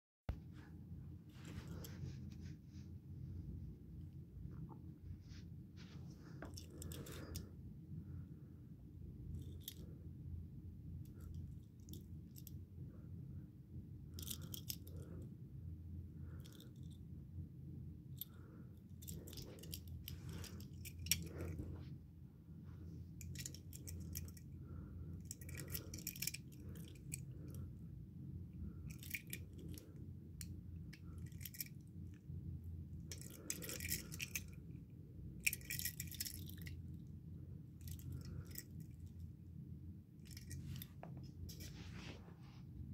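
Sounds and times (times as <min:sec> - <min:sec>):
steady low hum: 0:00.3 - 0:42.9
toy cars handled in fingers: 0:06.3 - 0:07.5, 0:09.3 - 0:10.0, 0:11.0 - 0:12.6, 0:14.1 - 0:15.2, 0:16.3 - 0:17.0, 0:18.1 - 0:21.9, 0:23.2 - 0:24.5, 0:25.1 - 0:27.8, 0:28.7 - 0:32.2, 0:33.0 - 0:34.8, 0:35.4 - 0:36.8, 0:37.8 - 0:39.2, 0:40.2 - 0:42.2.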